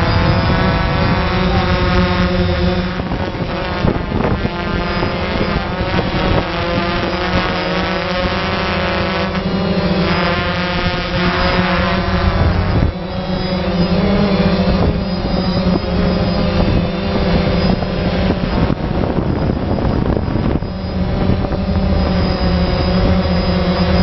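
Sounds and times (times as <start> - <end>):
drone propellers whirring: 0.0 - 24.0
wind noise on microphone: 0.0 - 24.0.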